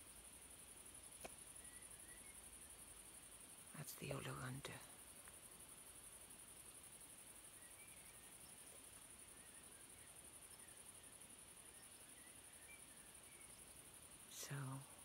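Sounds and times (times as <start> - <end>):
crickets chirring: 0.0 - 15.0
distant bird chirps: 1.2 - 3.2, 7.4 - 14.9.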